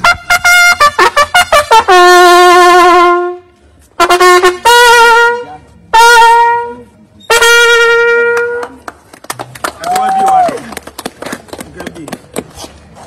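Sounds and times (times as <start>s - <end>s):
trumpet held notes: 0.0s - 8.8s.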